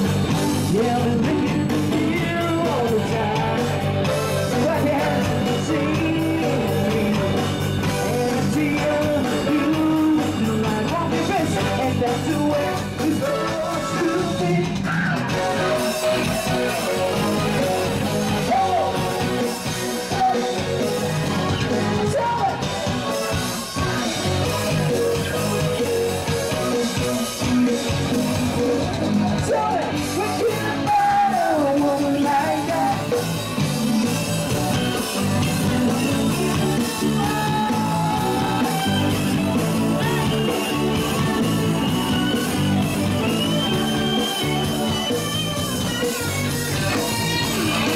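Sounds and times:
bass line: 0.0 - 47.9
live band playing: 0.0 - 47.9
man singing into microphone: 0.5 - 15.2, 20.0 - 20.9, 29.4 - 33.2.

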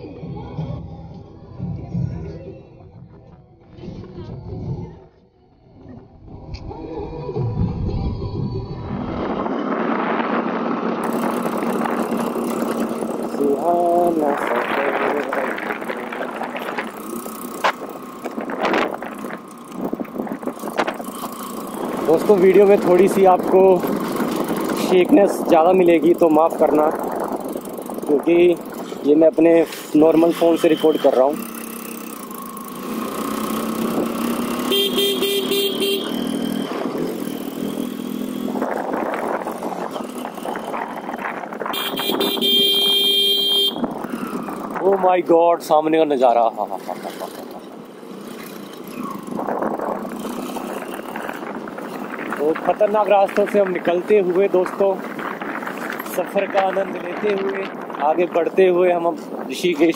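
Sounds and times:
road and wind noise: 0.0 - 59.9
motorcycle engine running: 11.0 - 58.1
motorcycle horn beeps: 30.4 - 31.4, 34.6 - 36.8, 41.6 - 43.9
long horn honk: 34.6 - 36.7, 41.6 - 43.9.

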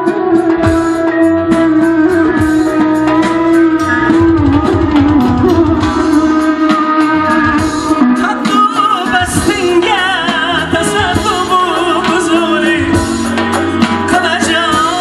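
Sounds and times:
plucked-string melody: 0.0 - 15.0
steady drum beat: 0.0 - 15.0.

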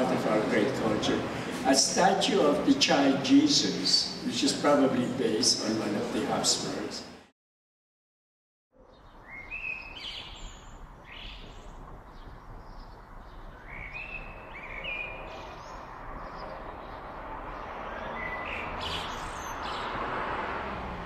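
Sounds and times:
songbird chirping: 8.8 - 20.1.

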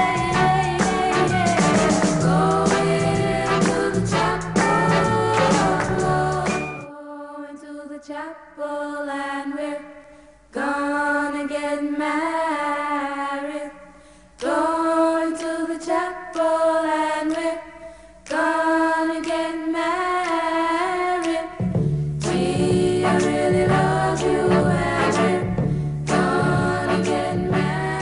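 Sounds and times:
voices singing long notes: 0.0 - 10.0, 22.2 - 28.0.

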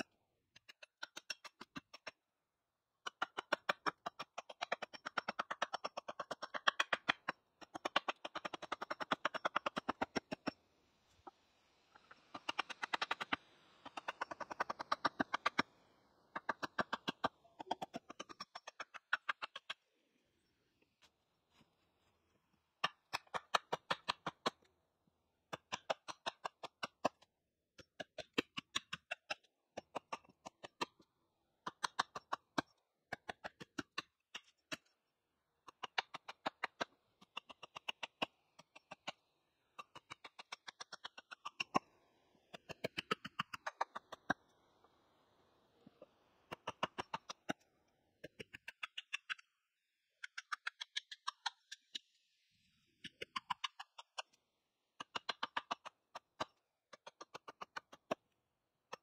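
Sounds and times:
hatchet chopping wooden pole: 3.0 - 10.6, 12.0 - 15.7, 16.3 - 19.8, 25.5 - 35.0, 55.0 - 58.3.

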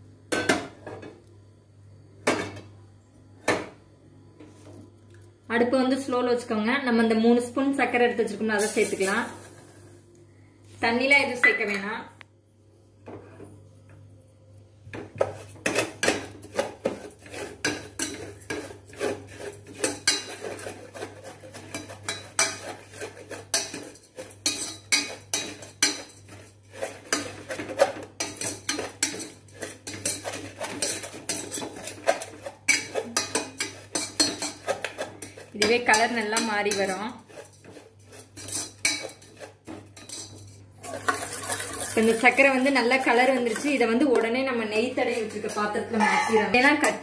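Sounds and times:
metal spoon scraping steel pot: 15.3 - 44.2, 45.0 - 47.0.

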